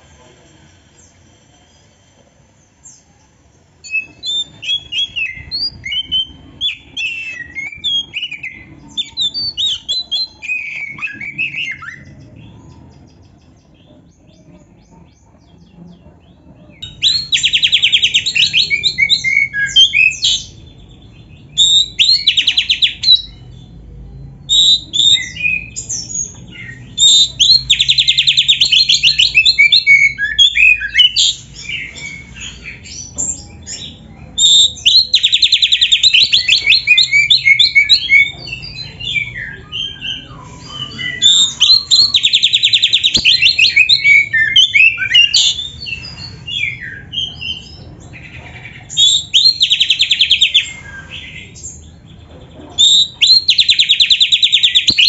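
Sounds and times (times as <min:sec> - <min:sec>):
bird whistling and chirping: 0:03.8 - 0:12.3, 0:16.8 - 0:20.7, 0:21.4 - 0:23.4, 0:24.4 - 0:48.2, 0:48.9 - 0:51.8, 0:52.8 - 0:55.0.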